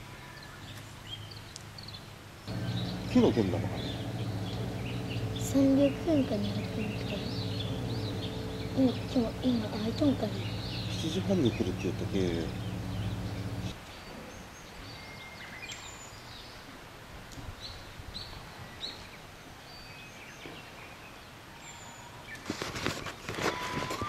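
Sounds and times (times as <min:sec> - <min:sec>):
outdoor hiss: 0:00.0 - 0:19.8
birds chirping: 0:00.3 - 0:16.5
low hum: 0:02.5 - 0:13.8
rustling and clicking: 0:22.4 - 0:24.0.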